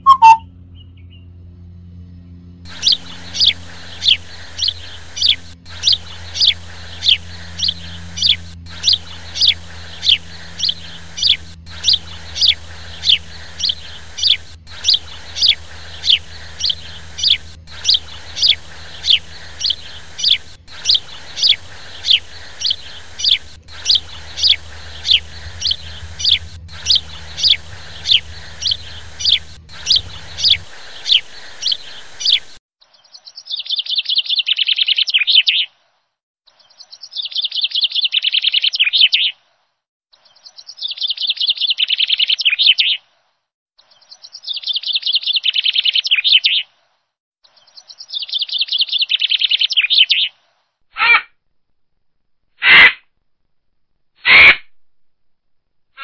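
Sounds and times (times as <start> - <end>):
bird chattering: 0.0 - 0.4, 2.7 - 32.6
bird chirping: 0.0 - 1.4, 2.7 - 35.6
low hum: 0.0 - 32.6.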